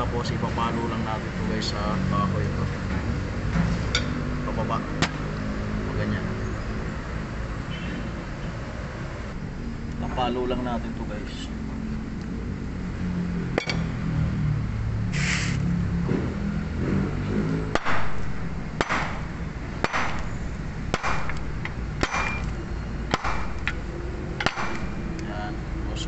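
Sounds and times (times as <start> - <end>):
hammer knocks through wood: 17.7 - 18.2, 18.8 - 19.2, 19.8 - 20.3, 20.9 - 21.4, 22.0 - 22.5, 23.1 - 23.6, 24.4 - 24.9.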